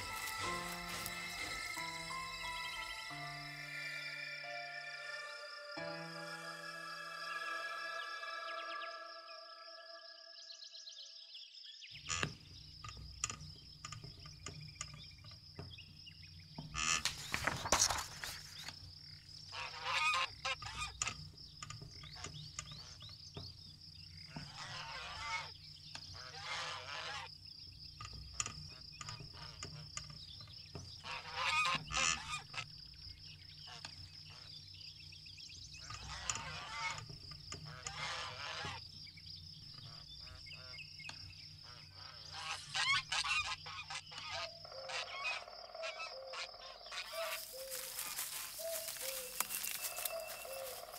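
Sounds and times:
birds calling: 0.0s - 6.7s, 11.8s - 50.9s
steady high-pitched tone: 0.0s - 10.4s.

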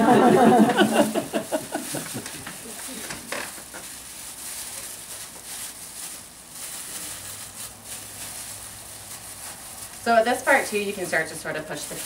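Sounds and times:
plastic gloves crinkling: 0.4s - 12.0s
cake crumbling crackle: 1.4s - 10.5s.

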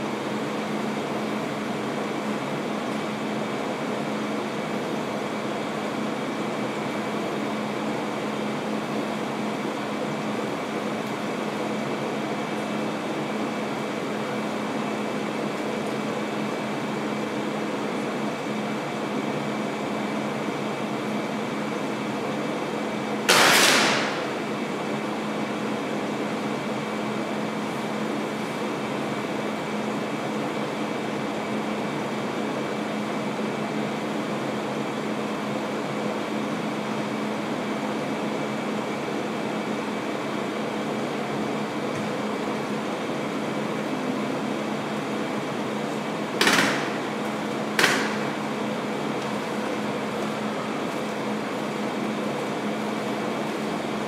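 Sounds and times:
air conditioning hum: 0.0s - 54.0s.

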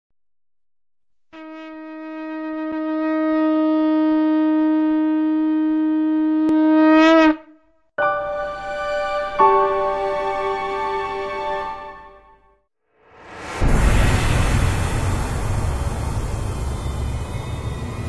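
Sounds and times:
conch shell blown: 1.4s - 11.9s
background music: 8.0s - 12.6s.

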